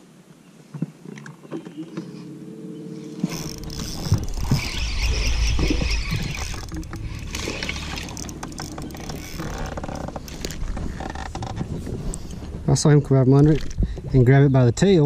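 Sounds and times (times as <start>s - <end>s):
fish splashing: 3.0s - 12.0s
fishing reel clicking: 3.1s - 11.3s
wind buffeting microphone: 3.1s - 15.0s.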